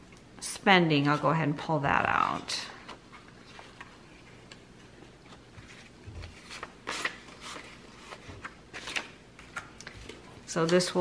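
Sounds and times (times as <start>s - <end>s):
paper money rustling: 5.3s - 10.9s.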